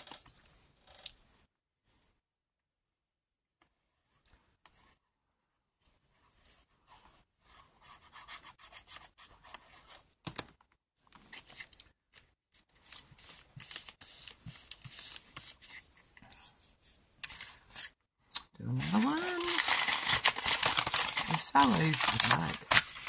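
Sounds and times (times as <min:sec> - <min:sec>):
paper crackle: 0:12.6 - 0:15.8, 0:18.7 - 0:23.0
hands rubbing paper: 0:12.8 - 0:18.0, 0:18.7 - 0:23.0
paper crumpling: 0:18.7 - 0:23.0.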